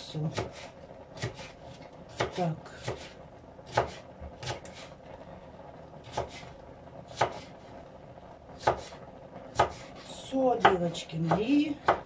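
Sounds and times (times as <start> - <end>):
knife chopping on cutting board: 0.3 - 4.9, 6.0 - 6.4, 7.1 - 7.5, 8.6 - 10.0, 10.6 - 12.0.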